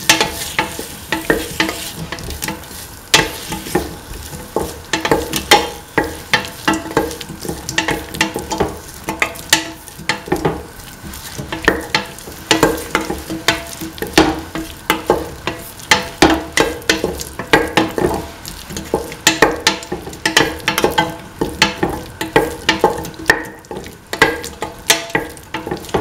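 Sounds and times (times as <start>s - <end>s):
spatula scraping metal pan: 0.0s - 15.8s
frying sizzle: 0.0s - 26.0s.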